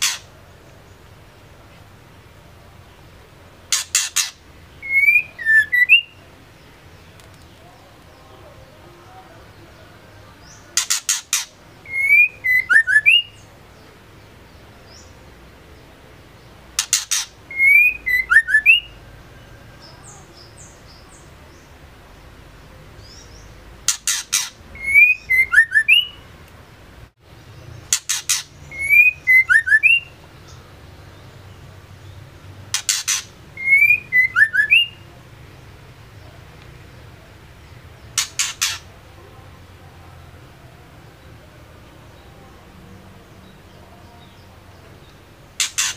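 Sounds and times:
bird calling ticks and whistles: 0.0s - 0.3s, 32.7s - 34.9s, 45.6s - 45.9s.

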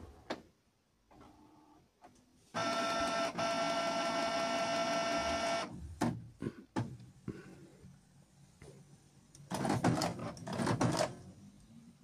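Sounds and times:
faint printer whir: 1.2s - 6.2s, 9.4s - 12.0s
printer motor whine: 2.6s - 5.8s.

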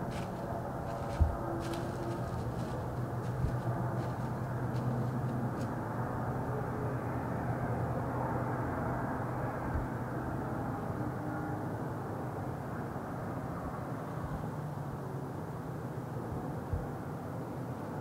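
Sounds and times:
distant engine rumble: 0.0s - 10.8s.

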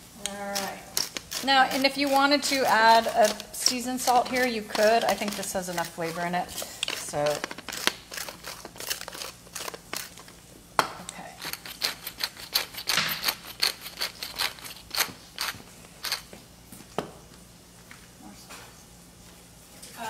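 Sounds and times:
pepper grinder clicking: 0.6s - 10.2s.

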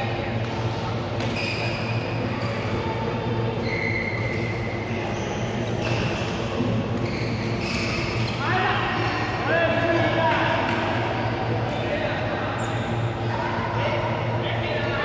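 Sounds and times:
steady low hum: 0.0s - 15.0s
court shoes squeaking: 0.4s - 9.4s, 12.5s - 13.2s.

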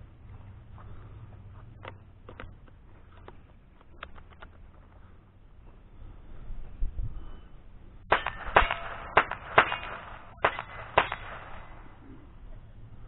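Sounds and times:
ringing of struck steel: 8.1s - 11.3s
rifle shots: 8.1s - 12.0s.

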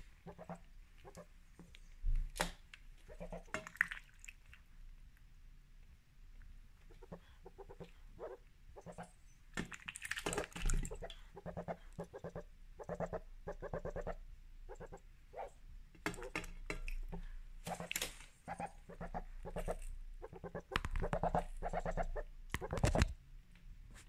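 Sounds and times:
water splashing: 3.2s - 4.6s, 9.6s - 11.1s
bill slurping water: 8.8s - 13.0s
duck quacking: 10.8s - 15.5s, 18.5s - 22.9s.

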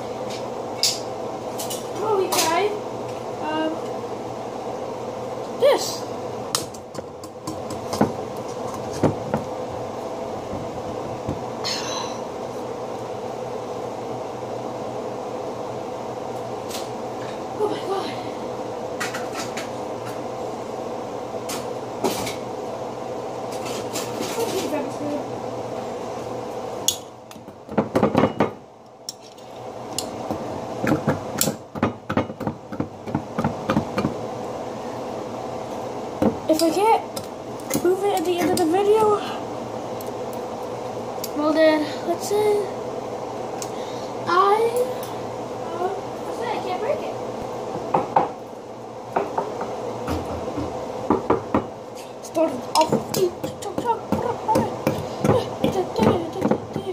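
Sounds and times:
steady low hum: 0.0s - 56.9s.

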